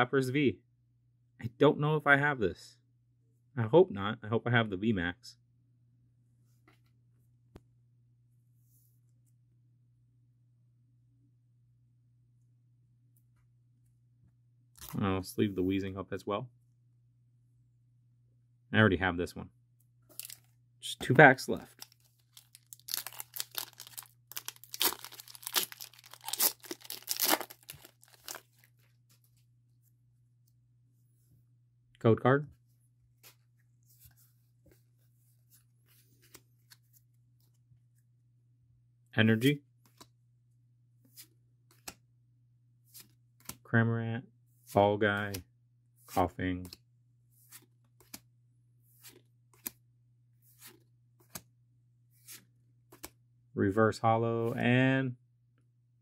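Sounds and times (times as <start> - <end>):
foil wrapper tearing and crinkling: 20.2 - 20.4, 21.8 - 28.7
cards sliding against cards: 50.4 - 51.4, 52.2 - 53.2.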